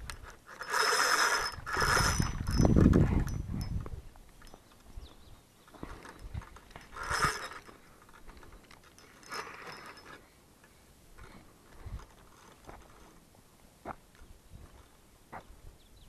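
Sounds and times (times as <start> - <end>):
fishing reel winding: 0.0 - 3.4, 6.8 - 7.8
small ticks and handling knocks: 2.9 - 5.0.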